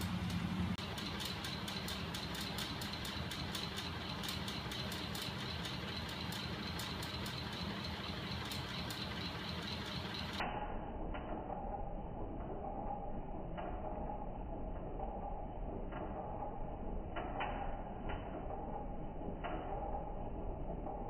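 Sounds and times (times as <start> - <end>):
mechanical clicks: 0.0 - 10.4
motor mechanical whir: 0.0 - 10.4
low hum: 0.0 - 21.0.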